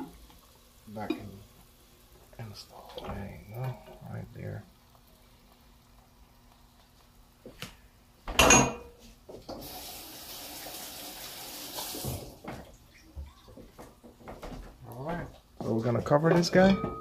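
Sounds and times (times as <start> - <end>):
kitchen tap running: 0.0 - 7.3, 9.4 - 14.1.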